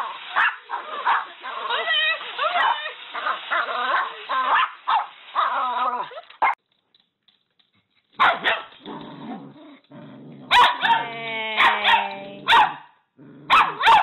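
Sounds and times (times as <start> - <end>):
small dogs barking: 0.0 - 6.6, 8.2 - 8.8, 10.4 - 14.0
dogs growling: 8.7 - 11.0, 13.2 - 13.9.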